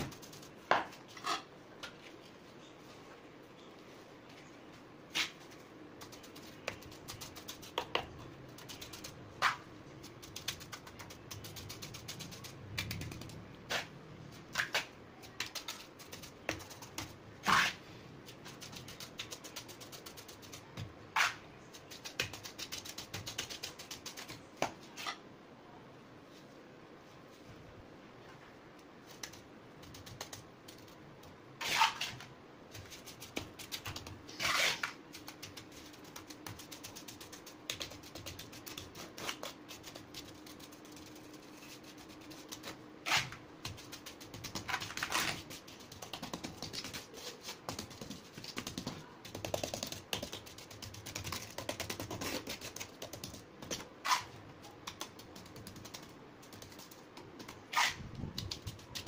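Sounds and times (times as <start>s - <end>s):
trowel scraping: 17.4s - 17.8s, 31.6s - 32.2s, 34.3s - 35.0s.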